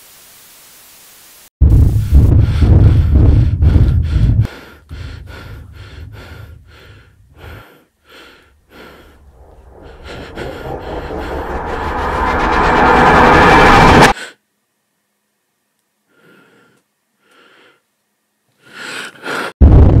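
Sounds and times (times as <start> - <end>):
rushing noise: 1.6 - 7.6, 8.7 - 14.2
person breathing hard and fast: 1.8 - 13.3, 16.1 - 17.9, 18.6 - 19.6.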